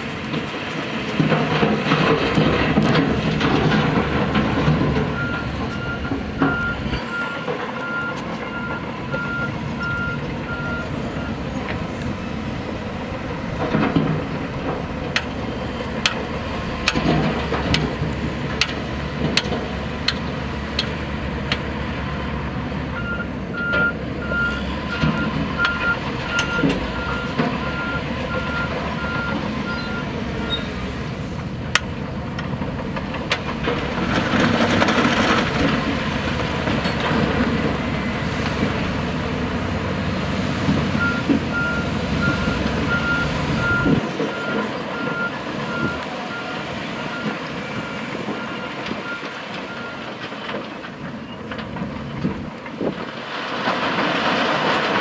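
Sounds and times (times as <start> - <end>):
heavy machinery running: 0.0 - 55.0
reversing alarm beeping: 5.1 - 11.4, 23.0 - 30.7, 41.0 - 50.1.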